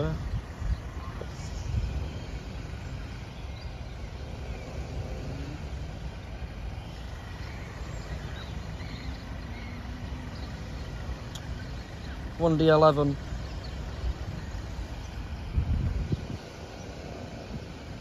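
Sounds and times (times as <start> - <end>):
wind noise: 0.0 - 5.4, 13.8 - 18.0
traffic rumble: 0.0 - 18.0.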